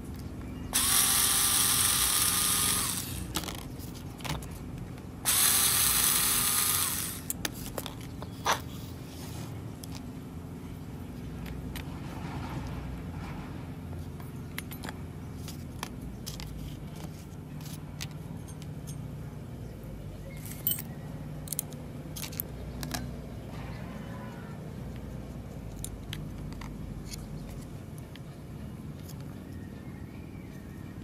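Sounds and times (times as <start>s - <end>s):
steady low hum: 0.0s - 31.0s
metallic clicks and clinks of tools: 14.5s - 16.5s, 17.6s - 19.2s, 20.3s - 23.1s.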